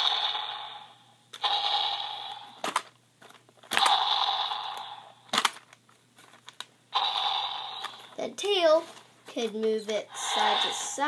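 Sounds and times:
toy dinosaur stomp noise burst: 0.0 - 2.9, 3.7 - 5.6, 7.0 - 8.2.

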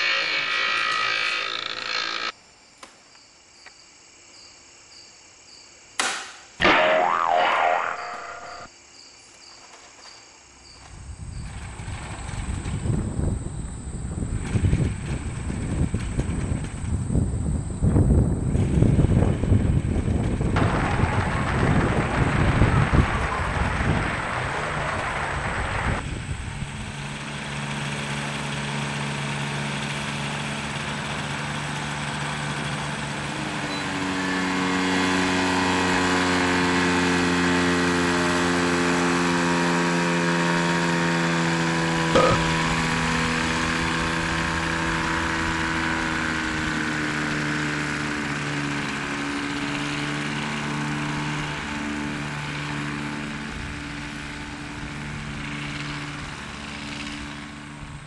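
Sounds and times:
sharp click: 6.0 - 7.0
aircraft engine running: 11.4 - 58.0.

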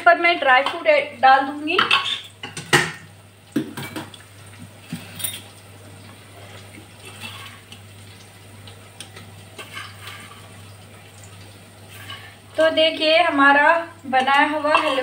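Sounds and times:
metal utensil clinking on plate: 14.2 - 15.0.

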